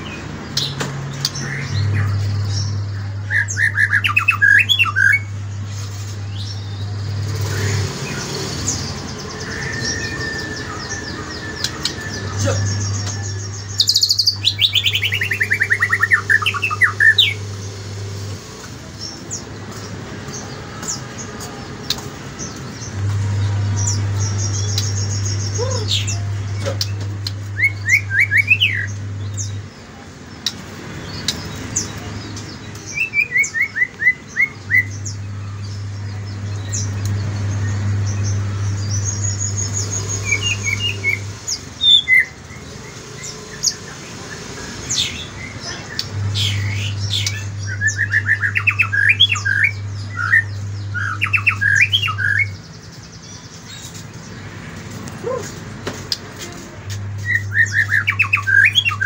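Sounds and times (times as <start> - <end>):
steady low hum: 0.0 - 32.9, 33.8 - 59.0
bird singing whistled notes: 8.7 - 18.1, 45.0 - 53.6, 57.2 - 59.0.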